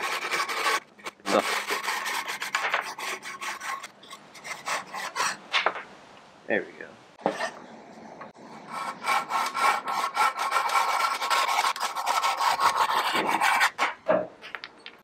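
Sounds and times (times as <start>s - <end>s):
hand saw cutting branch: 8.8s - 13.8s.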